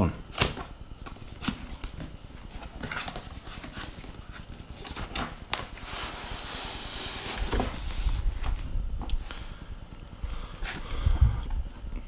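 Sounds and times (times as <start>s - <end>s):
box sliding out: 5.8s - 8.5s.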